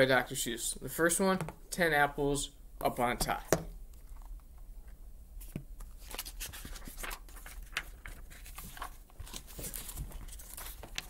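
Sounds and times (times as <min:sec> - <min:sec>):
paper rustling: 0:05.4 - 0:11.0.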